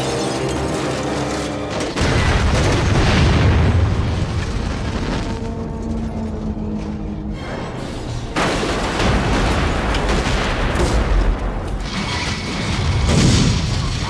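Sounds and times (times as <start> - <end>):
film score music: 0.0 - 3.3, 4.4 - 13.1
crashing and rumbling: 0.0 - 14.0
explosion blasts: 2.0 - 5.7, 8.4 - 14.0.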